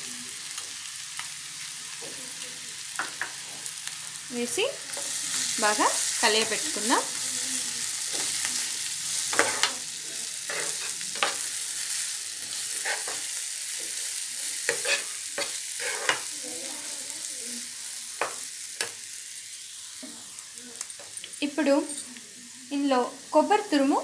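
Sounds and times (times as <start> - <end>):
food sizzling in oil: 0.0 - 24.0
spatula scraping a pan: 8.0 - 16.5.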